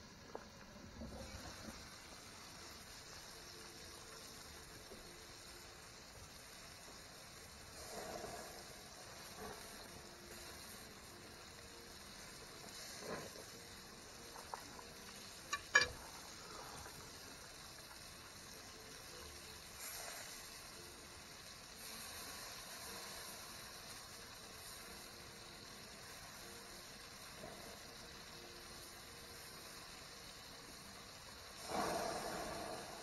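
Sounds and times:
steaks sizzling on a grill: 0:00.0 - 0:33.0.

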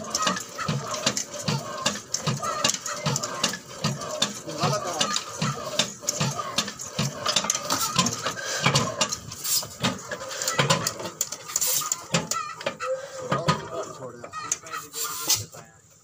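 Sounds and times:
sharp metallic clicks: 0:00.0 - 0:12.8
diesel engine chugging: 0:00.0 - 0:16.0.

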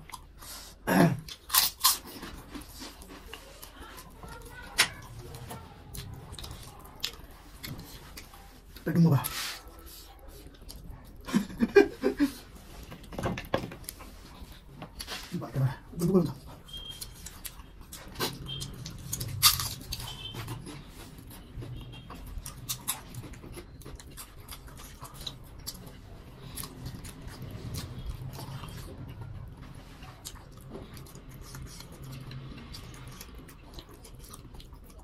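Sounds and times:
chewing and wet mouth clicks: 0:01.2 - 0:09.4, 0:10.3 - 0:11.3, 0:16.4 - 0:35.0.

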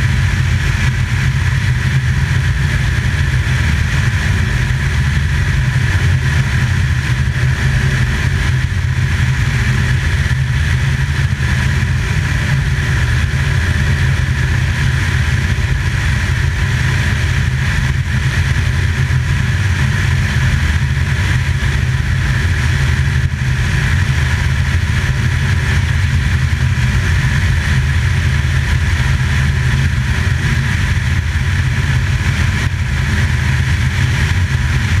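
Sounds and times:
aircraft engine and propeller drone: 0:00.0 - 0:35.0.

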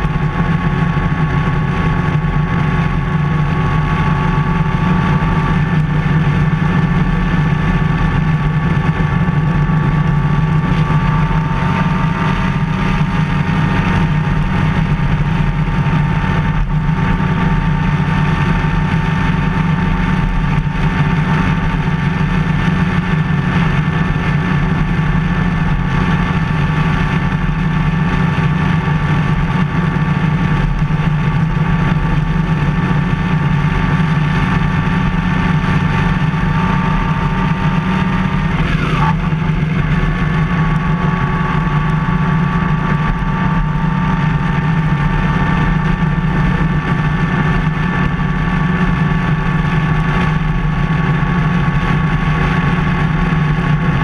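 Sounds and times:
motorcycle engine running: 0:00.0 - 0:54.0
wind and road noise: 0:00.0 - 0:54.0.

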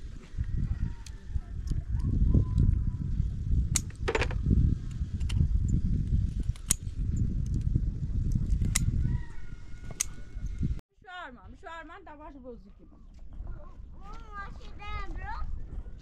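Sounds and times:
wind rumble on microphone: 0:00.0 - 0:10.8, 0:12.9 - 0:16.0.

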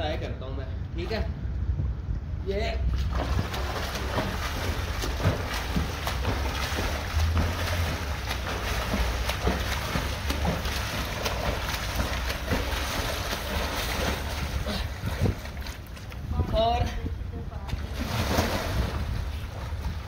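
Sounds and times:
swimmer splashing in pool: 0:03.0 - 0:16.1, 0:17.8 - 0:20.0.

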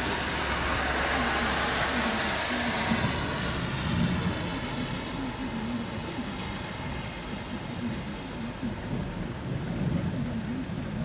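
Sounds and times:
tyre hiss on wet road: 0:00.0 - 0:05.9
low traffic rumble: 0:00.0 - 0:11.0
rain on wet pavement: 0:00.0 - 0:11.0.

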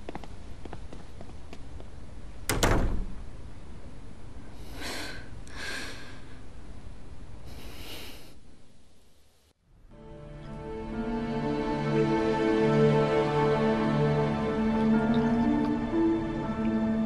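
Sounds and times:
wooden door shutting with thud: 0:02.5 - 0:03.3
soft breathy exhalations: 0:07.4 - 0:08.4.

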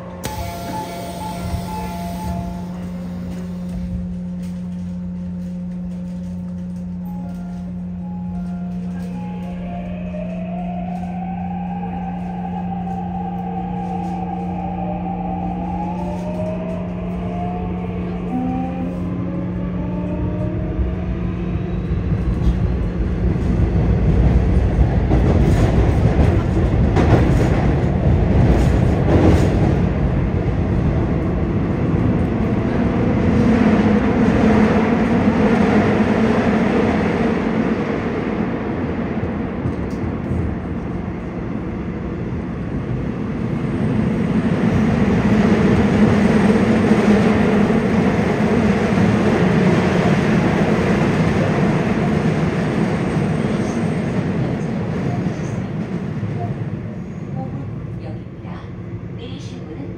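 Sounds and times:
wheels rumbling on rail: 0:00.0 - 0:59.9.

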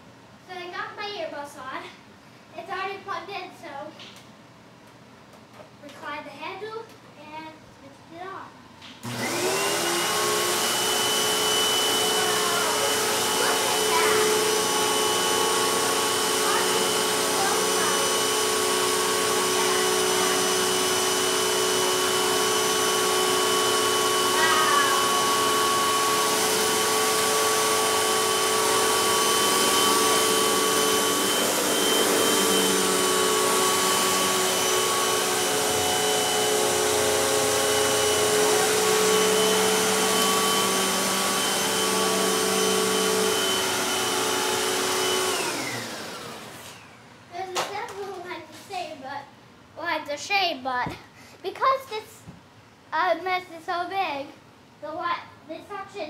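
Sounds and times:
vacuum motor winding down: 0:09.0 - 0:47.0
vacuum cleaner whining: 0:09.0 - 0:48.2.

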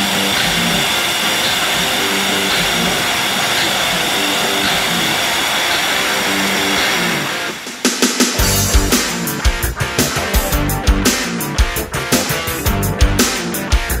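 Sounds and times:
core drill boring into concrete: 0:00.0 - 0:08.9
background music with a beat: 0:06.4 - 0:14.0.

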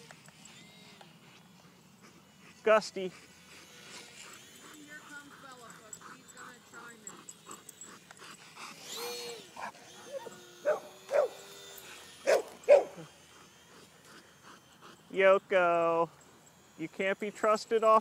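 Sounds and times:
dog barking: 0:09.6 - 0:11.4, 0:12.2 - 0:13.0.

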